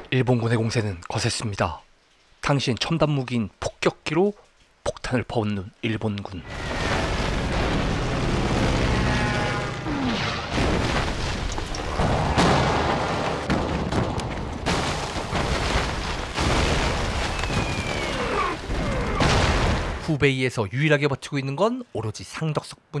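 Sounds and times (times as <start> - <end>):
bombs exploding: 6.5 - 20.1
roar of battle: 8.0 - 10.5.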